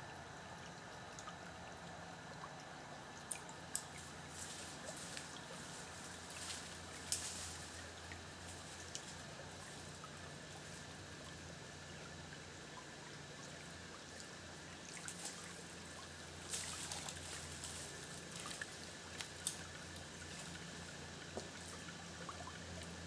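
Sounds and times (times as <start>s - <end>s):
faint outdoor hiss: 0.0s - 23.0s
leaves and twigs rustling: 3.7s - 11.0s, 14.9s - 21.8s.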